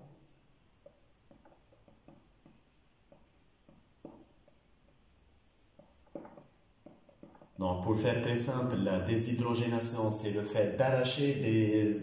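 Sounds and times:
marker writing on whiteboard: 0.0s - 7.6s.

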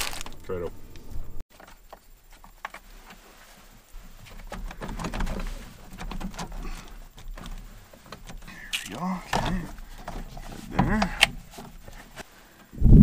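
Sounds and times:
plastic and rubber rubbing: 1.5s - 12.7s
plastic clicks and knocks: 4.2s - 12.0s.

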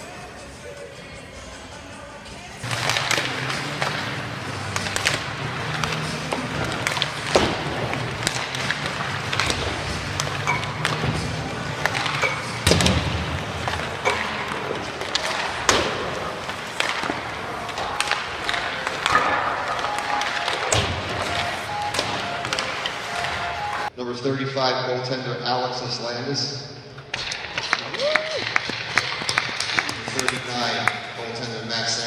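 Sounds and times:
arena noise: 0.0s - 32.0s
hockey pucks cracking off sticks: 2.6s - 23.9s, 27.1s - 31.0s.

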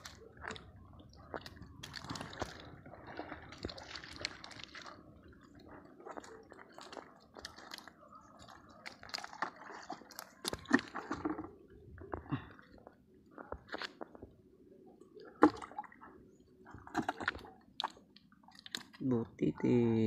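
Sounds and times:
hands sorting wet fish in net: 6.1s - 12.5s.

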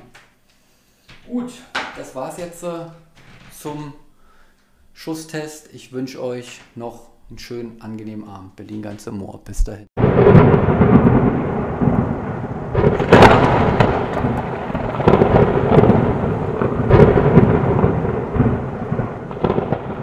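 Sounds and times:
rolling thunder: 10.0s - 20.0s
steady rain: 10.0s - 20.0s.

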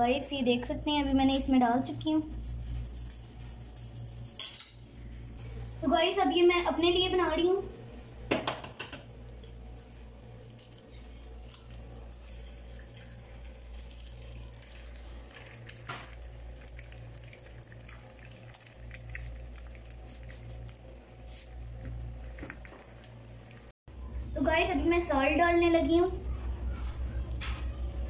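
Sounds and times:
eggs sizzling in oil: 7.7s - 23.8s.

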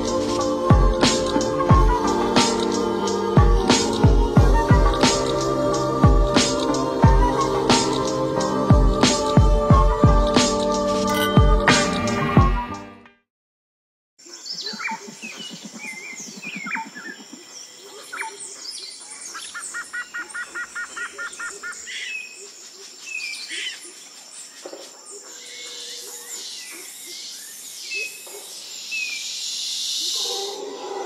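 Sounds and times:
high insect drone: 0.0s - 11.0s
insects buzzing hiss: 0.0s - 11.1s, 14.3s - 31.0s
birds chirping and whistling: 0.0s - 12.8s, 14.4s - 22.4s, 24.6s - 31.0s
low rapid pulsing bird call: 14.5s - 17.8s.

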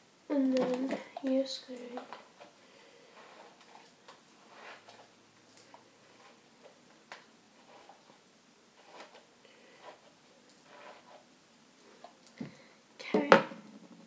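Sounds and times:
faint ticks and rustles of hair: 0.4s - 2.6s.

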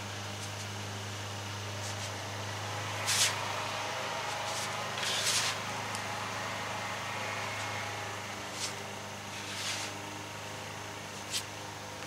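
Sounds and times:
spatula scraping griddle: 4.3s - 5.6s, 8.5s - 10.0s.

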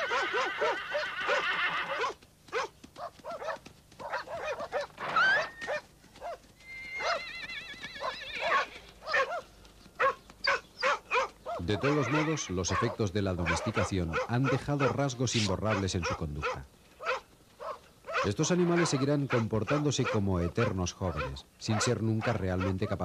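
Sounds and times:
horse whinnying: 0.0s - 2.1s, 5.0s - 5.7s, 6.6s - 9.3s, 11.8s - 12.9s
dogs barking and yelping: 0.0s - 6.4s, 7.0s - 7.3s, 8.0s - 23.0s.

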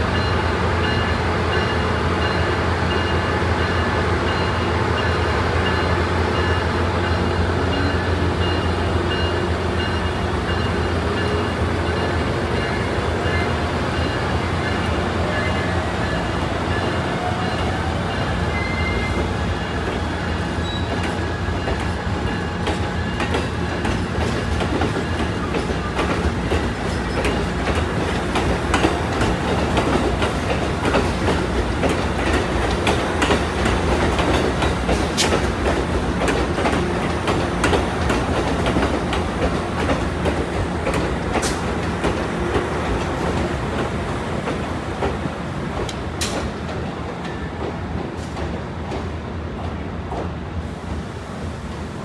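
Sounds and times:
train cars rolling past: 0.0s - 52.0s
wheel squeal: 20.6s - 21.1s
wheels clacking over rail joints: 20.6s - 49.1s.

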